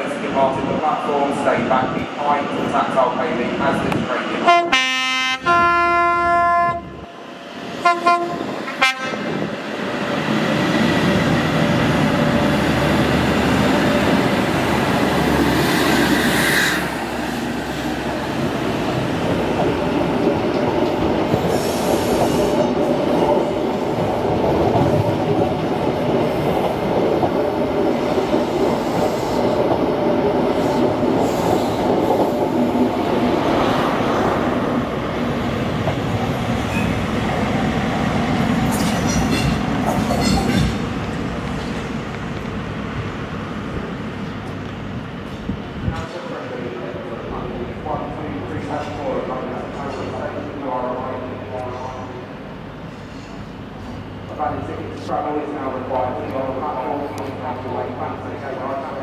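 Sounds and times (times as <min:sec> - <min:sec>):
diesel train engine: 0:00.0 - 0:59.0
train horn blasts: 0:04.4 - 0:07.0, 0:07.8 - 0:09.4
train wheels rattling on rails: 0:07.2 - 0:52.2.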